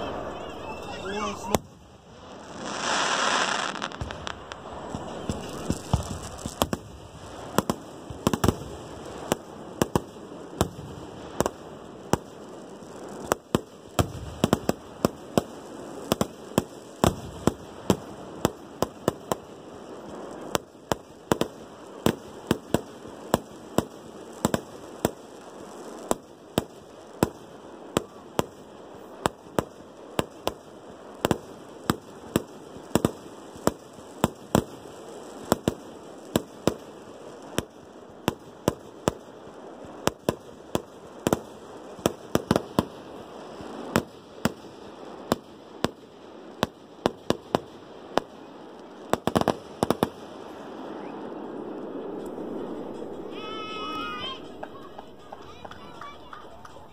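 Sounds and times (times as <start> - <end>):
fireworks bangs: 0.0 - 56.9
steady background noise: 14.7 - 56.9.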